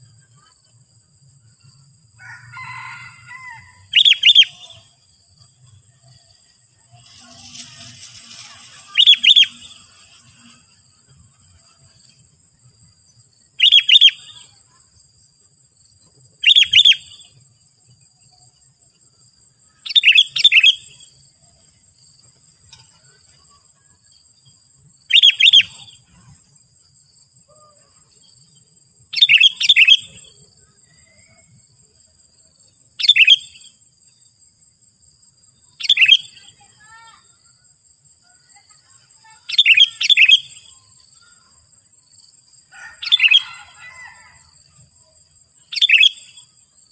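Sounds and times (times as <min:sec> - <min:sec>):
bird calling: 0:08.4 - 0:09.8.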